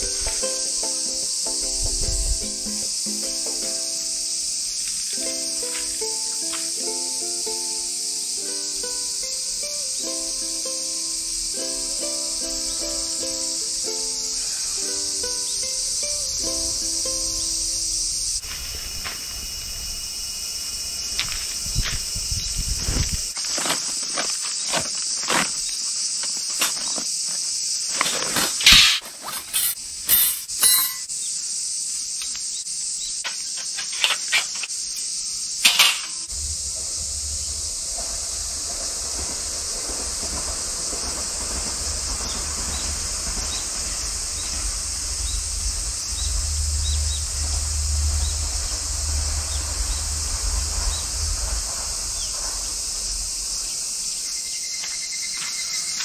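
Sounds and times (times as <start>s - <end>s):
insect chorus: 0.0s - 56.0s
handling clicks and scrapes: 23.4s - 31.0s, 33.3s - 34.8s
sharp metal clatters: 28.5s - 31.1s, 35.6s - 36.3s
low steady rumble: 36.3s - 40.0s, 43.3s - 53.6s.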